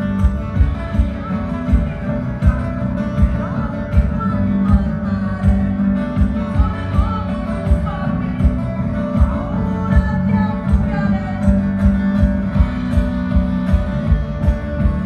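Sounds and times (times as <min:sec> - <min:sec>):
rock band playing: 0:00.0 - 0:15.0
person singing: 0:00.5 - 0:12.0.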